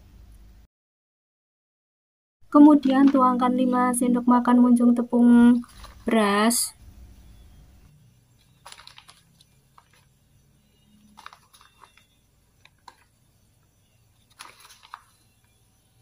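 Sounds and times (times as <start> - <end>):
plastic packet crinkling: 5.5 - 6.2, 8.4 - 10.2, 11.0 - 13.2, 14.2 - 15.6.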